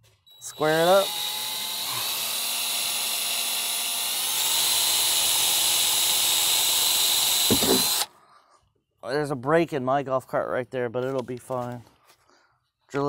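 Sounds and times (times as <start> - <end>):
cordless drill whining: 0.2 - 8.1.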